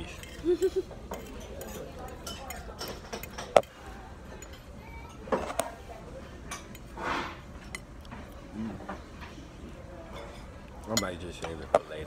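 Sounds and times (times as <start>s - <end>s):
metal fork clinking on plate: 1.1s - 4.6s.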